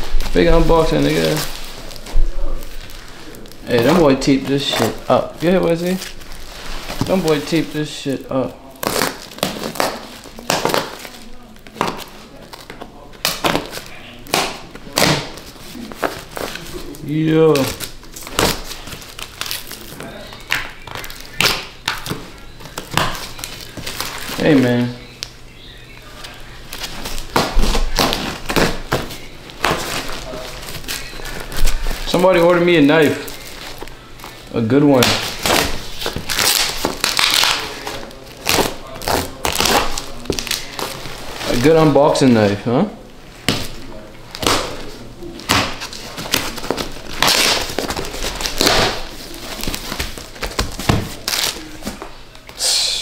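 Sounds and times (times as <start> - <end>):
package tape ripping: 8.8 - 24.5, 35.0 - 41.0, 45.4 - 51.7.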